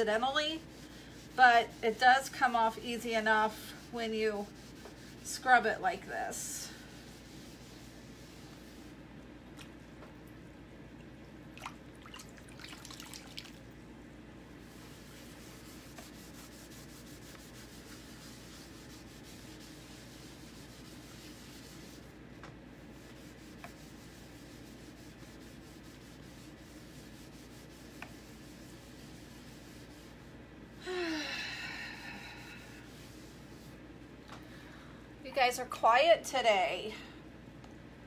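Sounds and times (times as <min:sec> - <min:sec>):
eraser rubbing chalkboard: 0:00.0 - 0:09.0, 0:14.6 - 0:22.2, 0:22.8 - 0:30.3.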